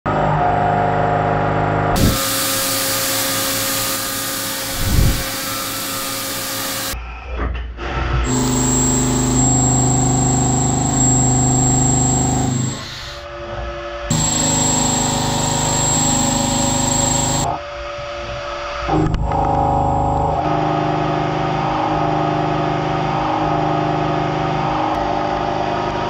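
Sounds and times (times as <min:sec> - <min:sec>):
coolant spray hiss: 0:02.0 - 0:07.0
milling cutter whine: 0:02.0 - 0:07.0, 0:08.3 - 0:13.2, 0:14.1 - 0:17.6.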